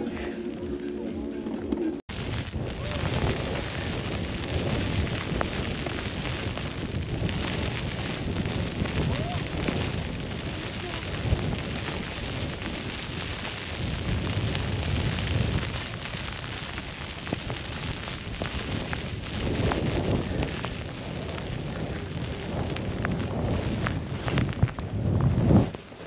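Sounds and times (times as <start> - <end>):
wind buffeting microphone: 0.0 - 26.0.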